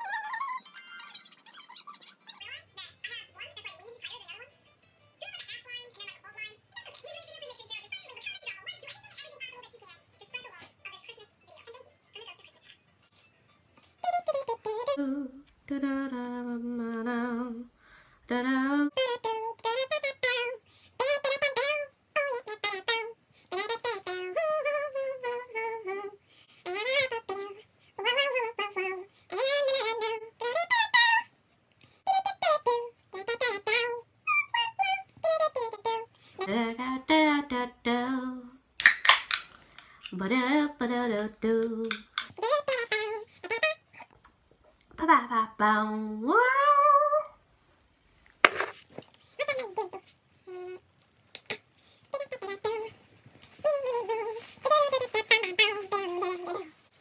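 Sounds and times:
woman singing: 14.4 - 20.6, 36.4 - 38.6, 40.1 - 43.2, 45.0 - 47.4.

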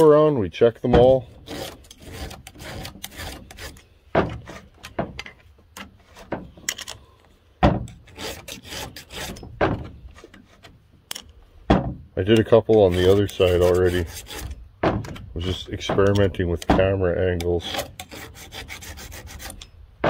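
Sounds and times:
file rasping on chainsaw chain: 1.3 - 4.7, 8.0 - 9.5, 12.8 - 14.6, 17.6 - 19.8
loud knocks: 9.4 - 10.0, 11.7 - 12.1, 14.8 - 16.1.

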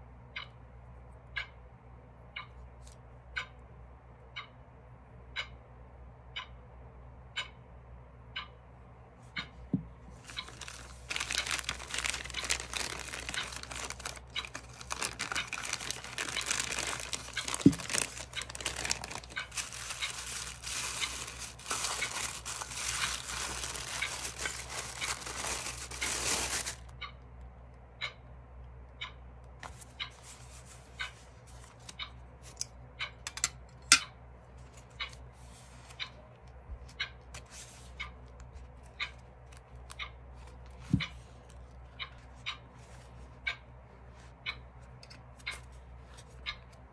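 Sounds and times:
packaging crinkling and rustling: 10.1 - 26.9.

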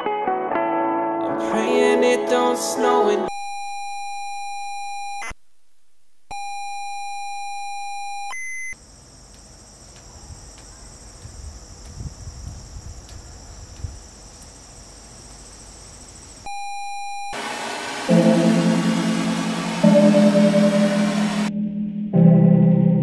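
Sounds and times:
high hiss: 17.4 - 21.5
buzzy electronic beep: 18.1 - 22.8
low rumbling: 18.1 - 23.0.

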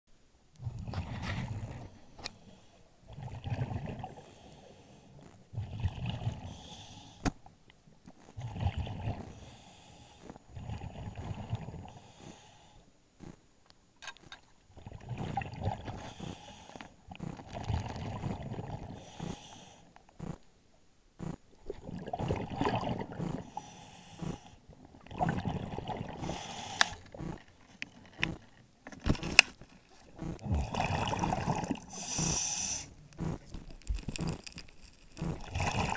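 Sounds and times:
diver breathing through regulator: 4.0 - 7.4, 8.4 - 13.0, 15.1 - 20.4, 22.0 - 27.5, 30.0 - 34.4
bubbly exhaust rumble: 24.2 - 26.4, 30.1 - 32.5.

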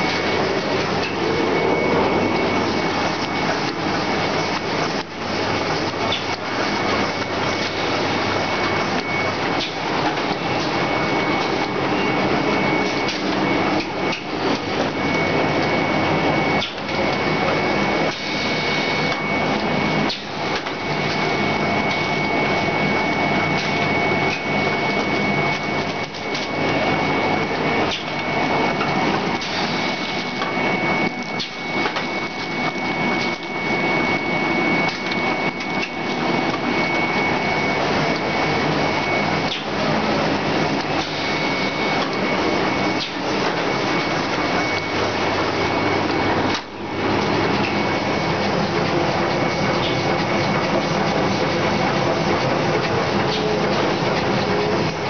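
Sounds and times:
high-pitched machine whine: 0.0 - 55.0
machine clatter of rapid clicks: 48.5 - 55.0.

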